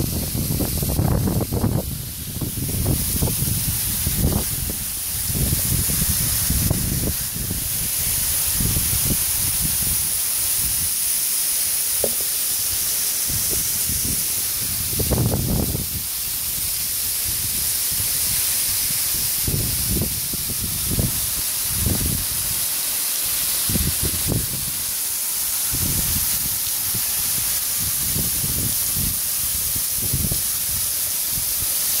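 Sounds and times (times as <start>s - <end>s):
wind buffeting microphone: 0.0s - 10.9s, 13.2s - 18.2s, 18.8s - 22.4s, 25.7s - 31.5s
waterfall hiss: 0.0s - 32.0s.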